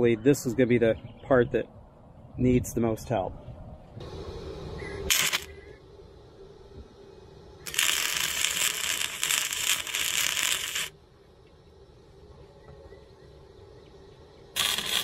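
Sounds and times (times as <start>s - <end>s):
welding arc sizzling crackle: 4.8s - 5.7s, 7.6s - 11.0s, 14.5s - 15.0s.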